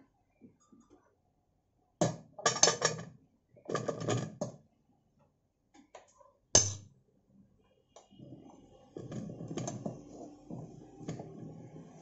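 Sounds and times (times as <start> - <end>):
sharp metal clank: 6.6 - 6.9.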